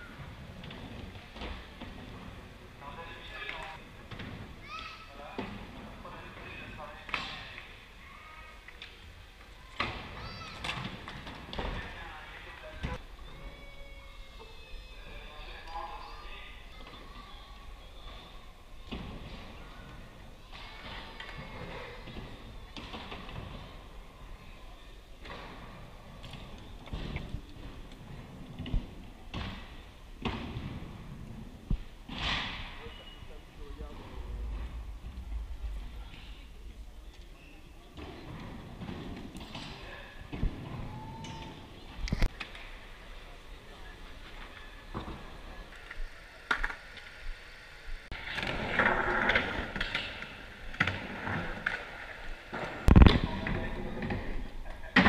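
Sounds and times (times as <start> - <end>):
faint hall background: 0.0 - 55.0
skateboard wheels rolling on wooden ramp: 16.7 - 32.8, 38.0 - 55.0.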